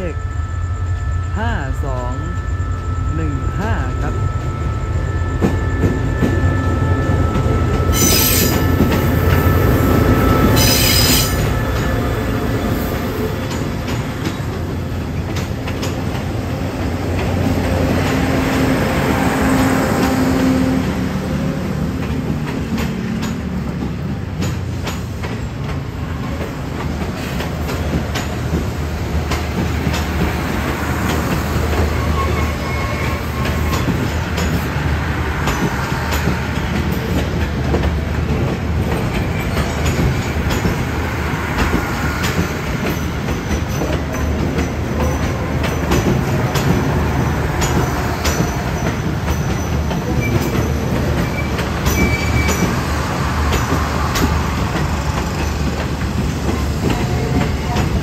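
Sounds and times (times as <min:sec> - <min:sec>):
thin steady squeal: 0:00.0 - 0:14.5
low train rumble: 0:00.0 - 0:58.0
train wheels clicking over rail joints: 0:07.3 - 0:18.7, 0:20.0 - 0:58.0.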